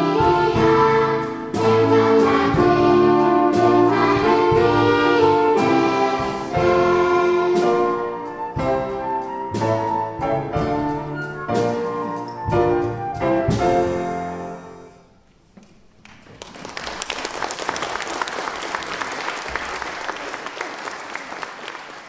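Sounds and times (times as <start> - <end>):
audience applauding: 16.0 - 22.0.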